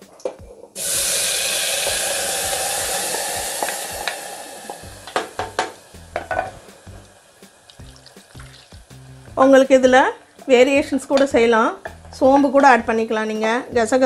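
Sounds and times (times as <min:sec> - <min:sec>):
water hissing in hot cooker: 0:00.8 - 0:10.7.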